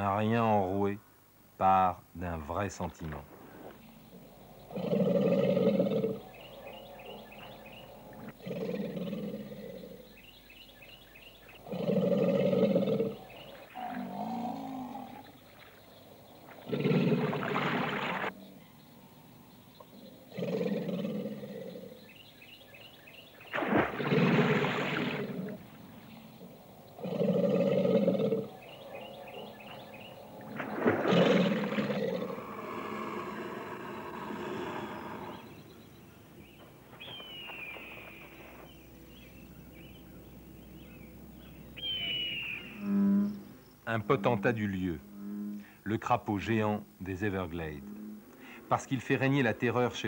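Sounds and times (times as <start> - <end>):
faint outdoor background: 0.0 - 50.0
caiman bellowing: 3.3 - 45.9
bird whistled call: 37.0 - 40.0, 41.8 - 42.9.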